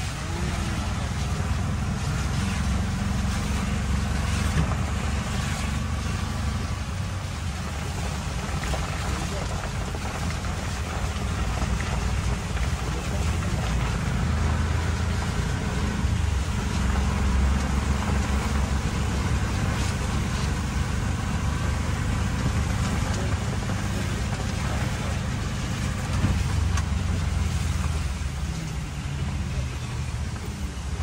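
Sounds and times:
auto-rickshaw engine rumble: 0:00.0 - 0:31.0
heavy rain hiss: 0:00.0 - 0:31.0
wet road noise: 0:00.0 - 0:31.0.

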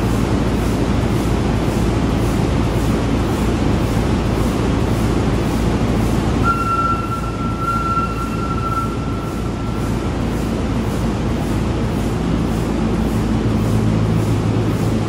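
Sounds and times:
diesel engine rumbling: 0:00.0 - 0:15.0
high whistling tone: 0:06.4 - 0:10.6.

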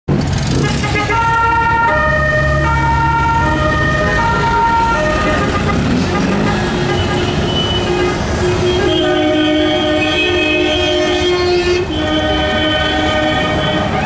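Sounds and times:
cars passing rumble: 0:00.1 - 0:14.0
two-tone siren: 0:01.1 - 0:05.8.

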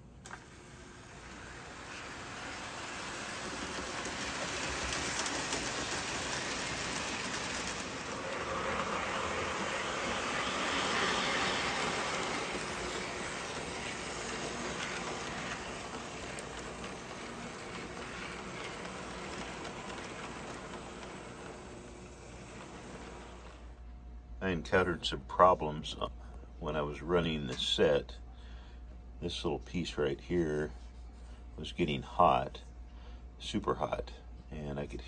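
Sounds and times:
train wheels rolling on rails: 0:00.0 - 0:23.7
model train motor whirring: 0:00.2 - 0:23.7.

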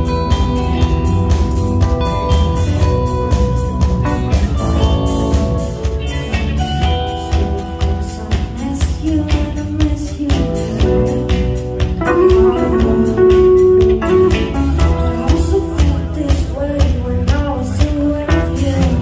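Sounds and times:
drum kit beat: 0:00.0 - 0:19.0
live rock band playing: 0:00.0 - 0:19.0
woman singing into a microphone: 0:06.9 - 0:11.3, 0:14.3 - 0:19.0.

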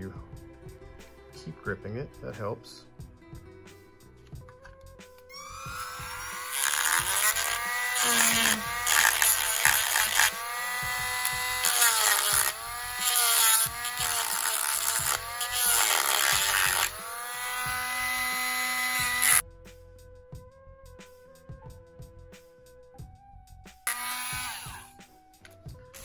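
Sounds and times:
cut-off wheel grinding metal: 0:05.3 - 0:19.4, 0:23.9 - 0:25.0
rotary tool motor whine: 0:05.3 - 0:19.4, 0:23.9 - 0:25.0.

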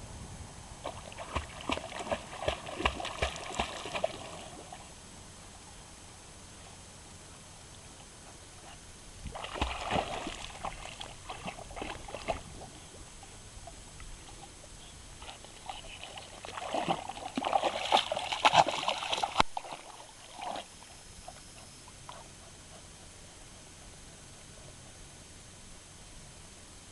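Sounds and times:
puppy splashing through water: 0:00.8 - 0:04.9, 0:09.2 - 0:13.0, 0:15.2 - 0:21.4.

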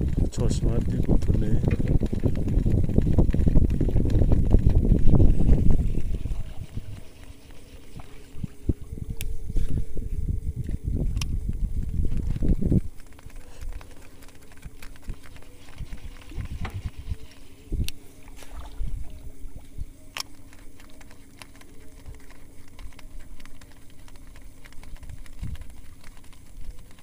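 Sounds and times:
wind rumbling on microphone: 0:00.0 - 0:27.0
fishing reel whirring: 0:00.3 - 0:27.0
tackle clicks: 0:20.1 - 0:27.0.

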